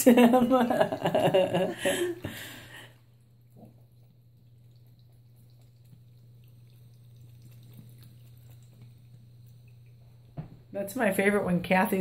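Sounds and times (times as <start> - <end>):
steady low hum: 0.0 - 12.0
cat lapping water: 2.4 - 10.4
tap water trickling into sink: 3.6 - 10.7.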